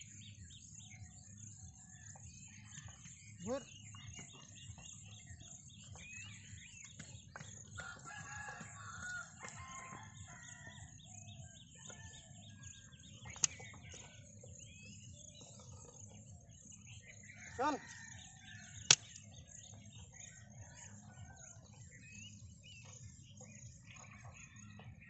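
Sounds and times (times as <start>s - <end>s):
small birds chirping: 0.0s - 25.0s
rooster crowing: 7.8s - 10.9s
sharp click: 13.3s - 13.6s, 18.8s - 19.2s.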